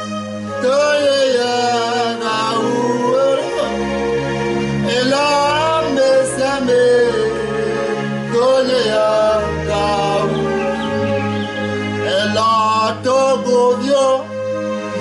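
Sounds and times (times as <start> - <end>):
man singing a hymn: 0.0 - 4.2, 4.8 - 15.0
held instrumental chords: 0.0 - 15.0
low bass: 0.0 - 15.0.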